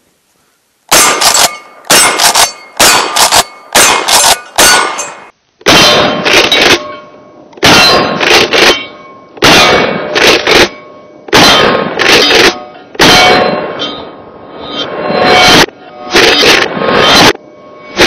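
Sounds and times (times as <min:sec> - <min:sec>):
shotgun shots: 0:00.9 - 0:06.9, 0:07.6 - 0:13.8
steel targets clanging: 0:00.9 - 0:18.0.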